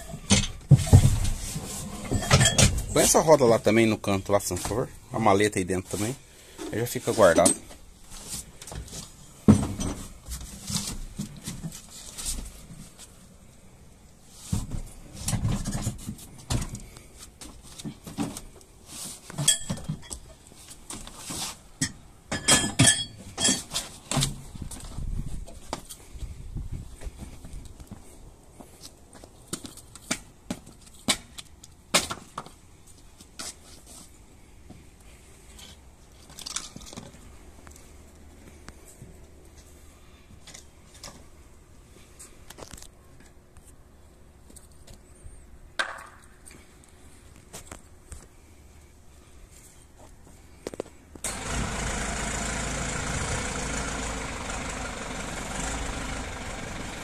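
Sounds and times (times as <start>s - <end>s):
tools clinking and knocking: 0.0s - 1.3s, 2.0s - 3.2s, 6.6s - 7.8s, 19.4s - 20.4s, 21.8s - 24.2s.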